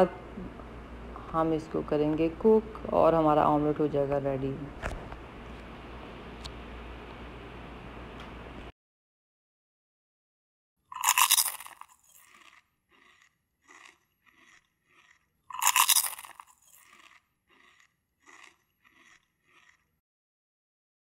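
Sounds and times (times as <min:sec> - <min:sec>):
pepper mill grinding: 0:10.9 - 0:19.9.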